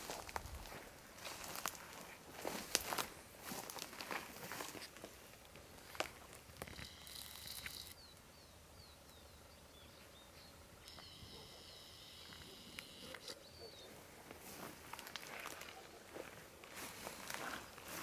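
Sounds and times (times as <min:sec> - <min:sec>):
camcorder zoom motor whining: 0:06.6 - 0:08.1, 0:10.8 - 0:13.5.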